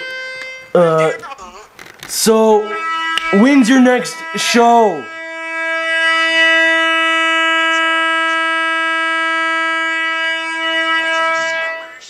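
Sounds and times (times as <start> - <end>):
man singing a long high note: 2.4 - 12.0.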